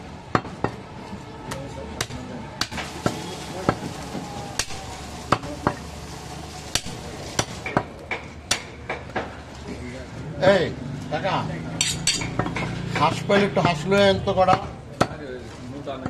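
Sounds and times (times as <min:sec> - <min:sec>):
knife chopping meat on wood block: 0:06.8 - 0:09.3.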